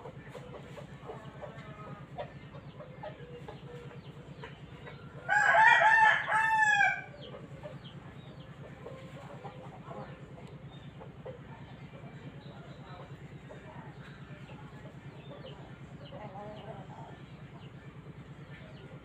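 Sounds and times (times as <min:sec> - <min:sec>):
steady low hum: 0:00.0 - 0:19.0
rooster crowing: 0:05.3 - 0:07.1.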